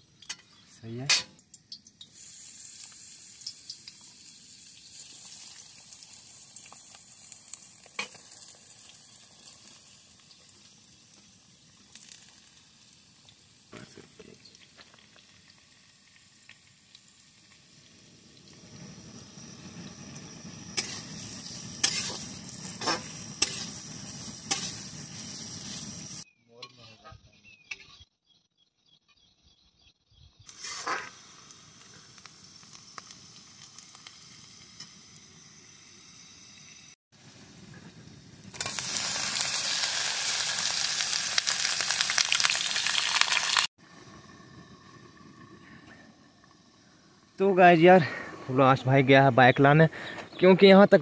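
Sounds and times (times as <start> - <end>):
onions sizzling in hot oil: 1.2 - 26.3, 30.4 - 47.8
metal spatula scraping a pan: 20.8 - 23.8, 24.4 - 24.9, 30.5 - 31.1.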